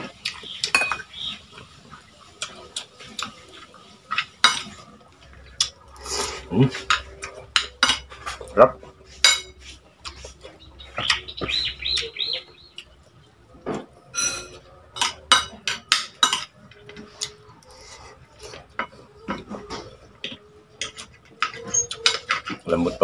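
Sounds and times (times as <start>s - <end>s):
bird calling: 0.2s - 1.6s, 10.2s - 13.1s
cutlery clinking on a plate: 0.7s - 1.1s, 4.1s - 4.8s, 5.6s - 8.4s, 9.2s - 9.6s, 13.7s - 16.5s, 18.6s - 22.6s.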